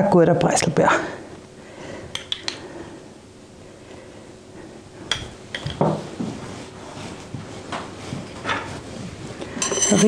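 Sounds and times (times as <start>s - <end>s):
glass jar clinking: 9.6s - 10.0s.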